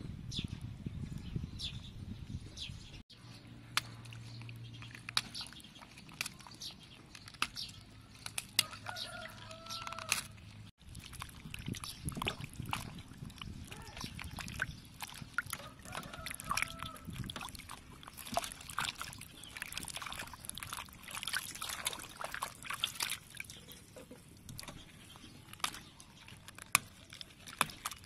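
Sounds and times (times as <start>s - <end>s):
birds chirping: 0.3s - 10.5s, 11.7s - 17.1s, 18.0s - 22.7s, 23.3s - 26.4s
leaves rinsed in water: 3.8s - 23.8s.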